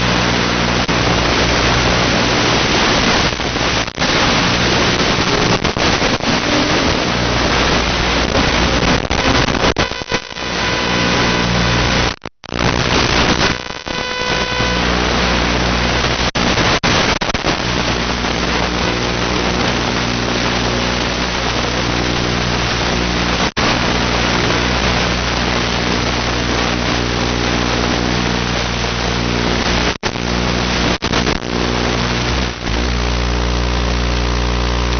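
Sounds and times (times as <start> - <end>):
wind noise: 0.0 - 9.9.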